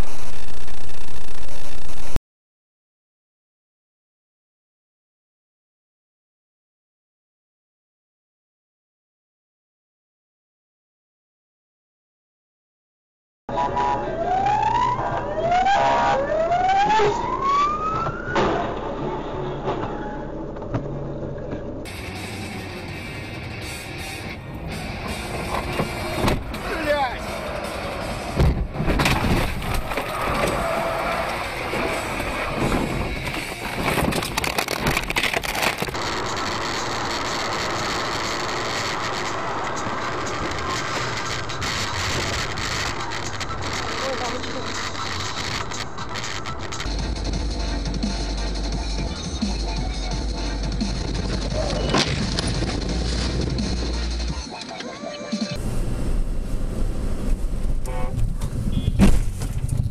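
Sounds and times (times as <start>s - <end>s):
emergency siren wailing: 13.5s - 20.3s
car road and engine noise: 13.5s - 54.8s, 55.5s - 59.9s
city traffic noise: 13.5s - 59.9s
clattering and crackling impacts: 28.2s - 43.9s, 51.0s - 54.0s.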